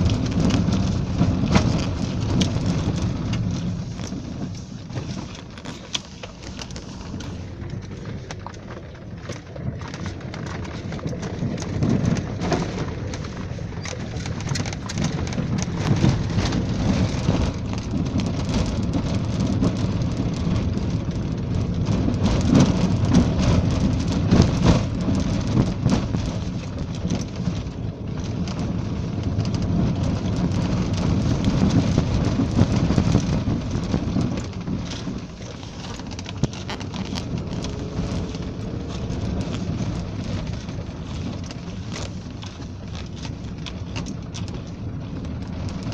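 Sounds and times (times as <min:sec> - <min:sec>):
road noise rumble in vehicle: 0:00.0 - 0:45.9
small knocks and rattles: 0:00.0 - 0:45.9
wind buffeting microphone: 0:00.0 - 0:45.9.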